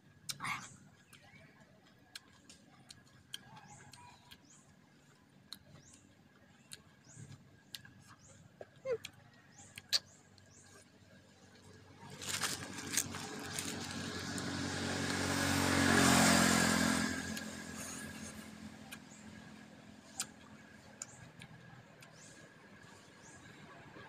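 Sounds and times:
vehicle driving past: 0:11.9 - 0:20.9.

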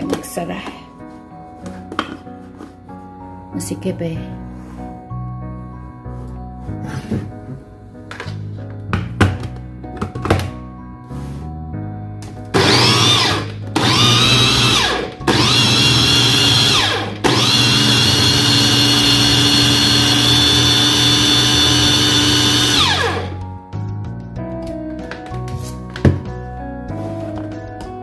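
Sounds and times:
electric chopper motor whining: 0:12.6 - 0:23.4.

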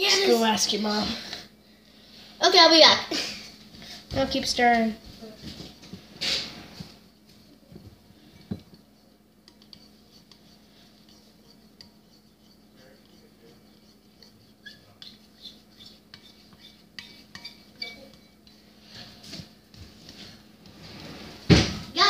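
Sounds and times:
utensil scraping ceramic bowl: 0:08.2 - 0:19.3.

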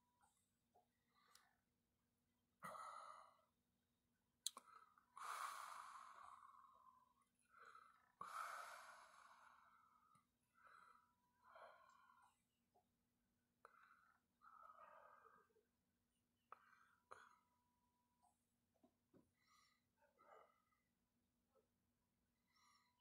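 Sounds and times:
person breathing: 0:04.6 - 0:12.5, 0:13.6 - 0:15.6.

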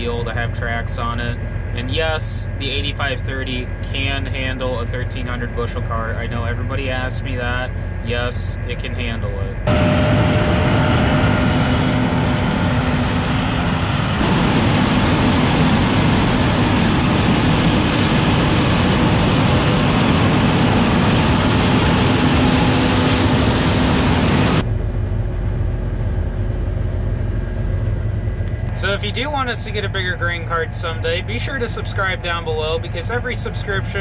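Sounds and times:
combine harvester rushing noise: 0:00.0 - 0:34.0
engine drone: 0:00.0 - 0:34.0.

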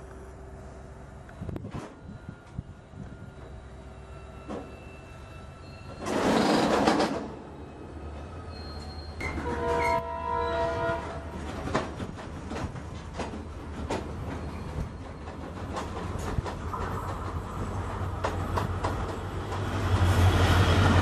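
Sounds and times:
freight train wagons rolling: 0:01.5 - 0:21.0
train horn: 0:09.2 - 0:11.4
train wheels clicking: 0:11.3 - 0:21.0.

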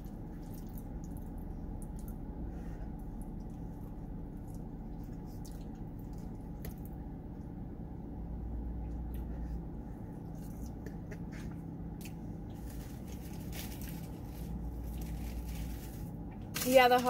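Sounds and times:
chewing and mouth sounds: 0:00.0 - 0:02.3, 0:03.0 - 0:07.5
paper rustling: 0:12.6 - 0:17.0.

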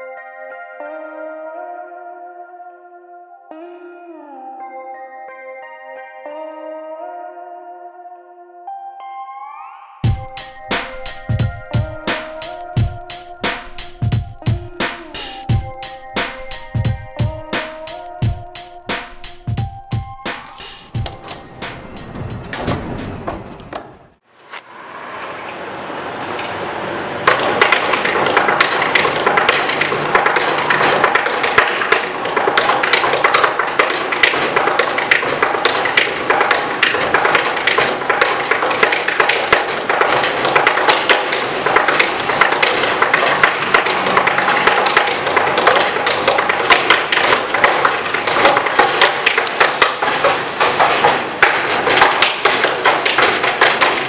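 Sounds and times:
tap shoes tapping on metal: 0:10.0 - 0:23.9, 0:27.2 - 0:54.0.

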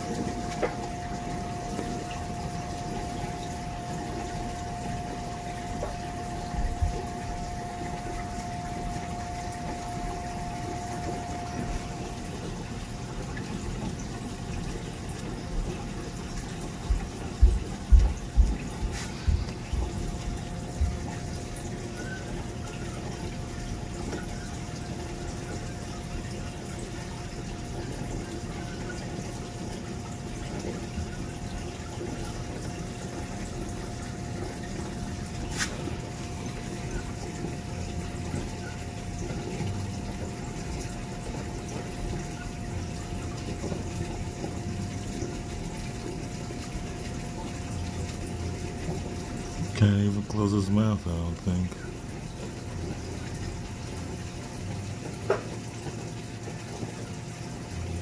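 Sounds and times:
pump hum: 0:00.0 - 0:58.0
water rushing: 0:42.8 - 0:58.0.

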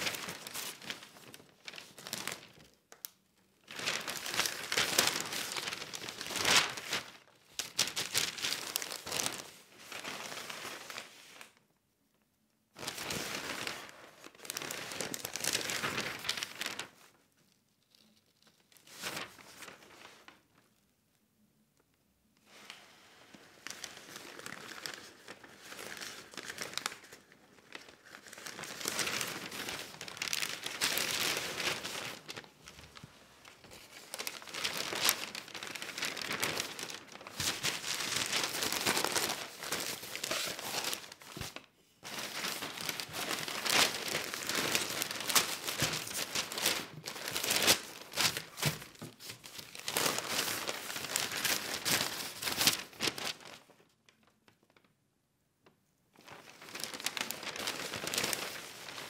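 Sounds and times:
newspaper pages rustling: 0:00.0 - 0:11.6, 0:12.8 - 0:17.3, 0:18.0 - 0:20.6, 0:22.5 - 0:53.8, 0:56.2 - 0:59.0.

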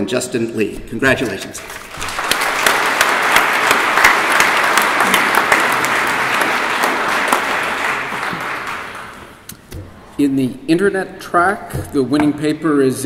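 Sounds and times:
audience applauding: 0:01.6 - 0:09.4.

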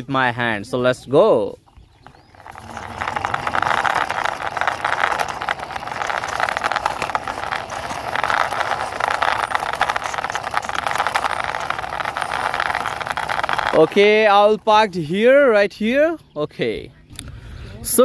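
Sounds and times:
toy wheels rattling on concrete: 0:01.7 - 0:15.9.

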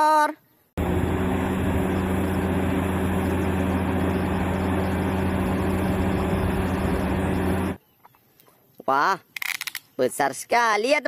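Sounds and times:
excavator diesel engine droning: 0:00.8 - 0:07.8.

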